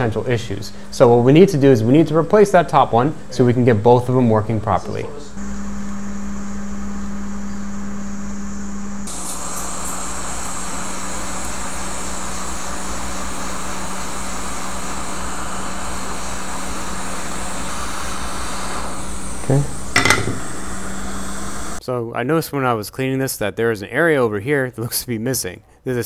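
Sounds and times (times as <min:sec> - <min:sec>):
hot air blower hissing: 0:00.0 - 0:01.4, 0:05.3 - 0:21.8
low machine hum: 0:00.0 - 0:21.8.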